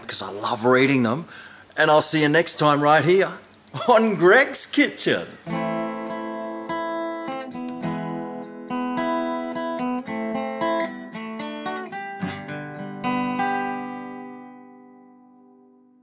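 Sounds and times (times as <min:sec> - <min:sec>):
acoustic guitar music: 0:04.2 - 0:16.0.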